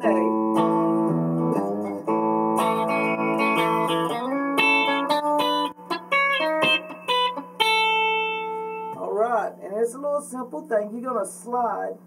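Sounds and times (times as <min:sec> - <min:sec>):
electric guitar country lick: 0:00.0 - 0:09.1.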